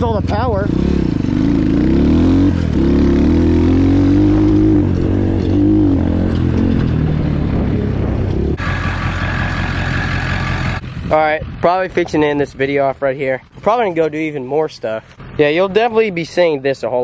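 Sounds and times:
dirt bike engine revving: 0.0 - 11.1.

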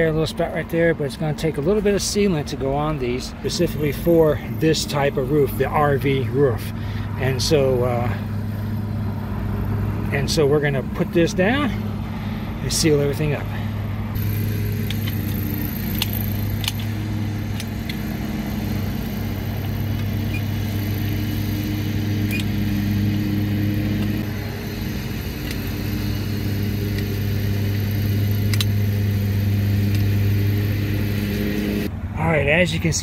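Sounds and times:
loud low machine hum: 0.0 - 33.0
caulking gun clicks: 28.5 - 28.8.

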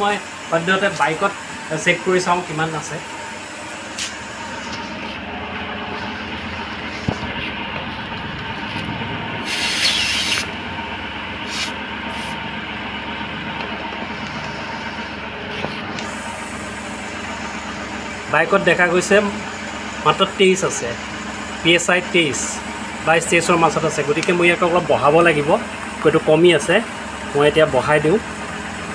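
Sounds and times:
steady mechanical hum: 0.0 - 28.9
air hissing from tyre valve: 9.4 - 10.5, 11.4 - 12.4.

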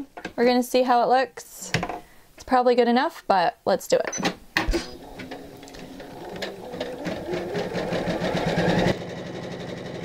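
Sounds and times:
embroidery machine stitching: 4.8 - 9.0.

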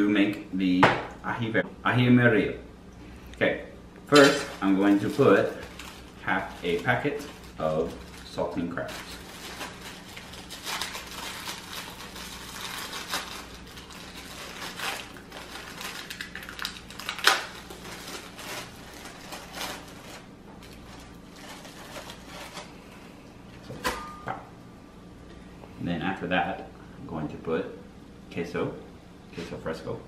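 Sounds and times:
plastic sleeve crinkling: 4.1 - 23.2
crackers snapping: 9.1 - 20.0.

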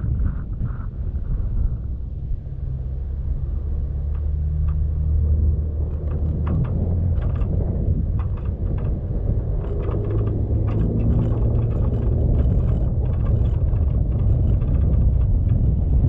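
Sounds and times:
vehicle engine and road rumble: 0.0 - 16.0.

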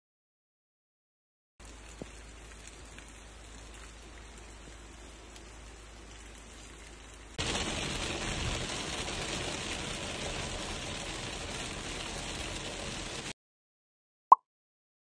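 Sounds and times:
heavy rain on a car roof: 1.6 - 13.4.

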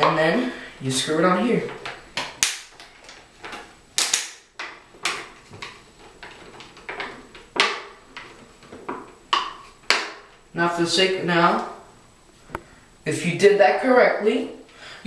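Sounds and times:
plastic bottle cracking: 1.8 - 10.3.

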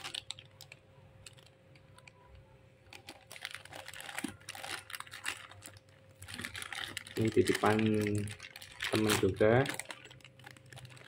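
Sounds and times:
plastic bags crinkling: 0.0 - 11.0.

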